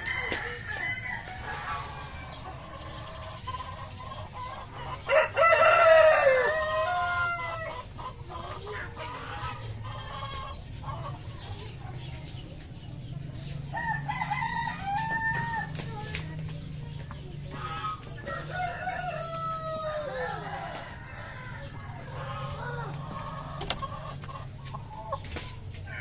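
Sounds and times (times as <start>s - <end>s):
hens clucking: 0.0s - 26.0s
rooster crowing: 5.1s - 7.8s, 13.8s - 15.7s, 18.2s - 23.9s.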